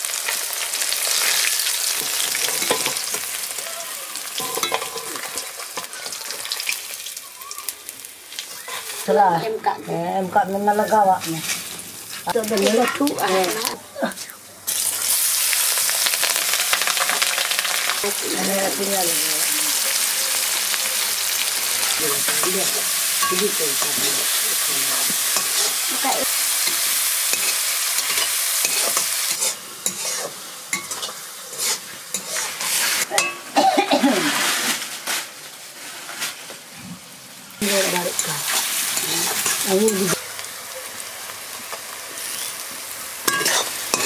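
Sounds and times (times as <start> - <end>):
onions sizzling in hot oil: 0.0 - 44.0
spatula scraping pan: 2.0 - 3.3, 21.8 - 33.4, 43.2 - 44.0.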